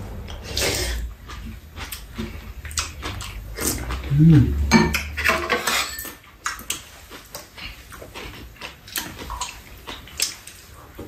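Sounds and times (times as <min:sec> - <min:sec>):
wet chewing and slurping: 0:00.2 - 0:05.2, 0:06.2 - 0:11.0.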